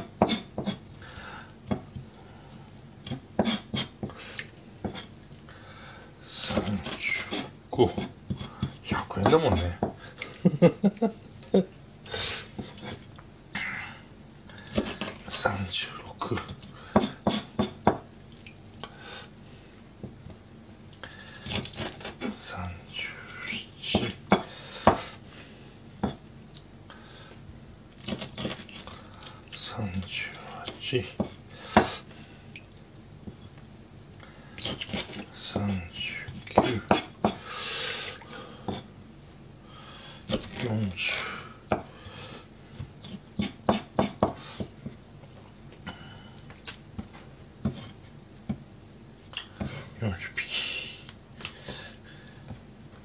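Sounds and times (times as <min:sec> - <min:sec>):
knife chopping fish on cutting board: 0:16.9 - 0:18.0, 0:43.4 - 0:44.4.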